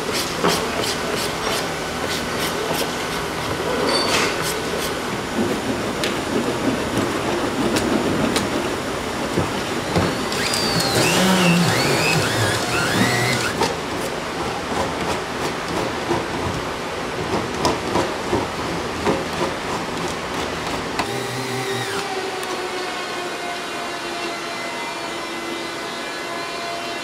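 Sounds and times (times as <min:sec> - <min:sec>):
plastic rod friction scrubbing: 0:10.1 - 0:13.6.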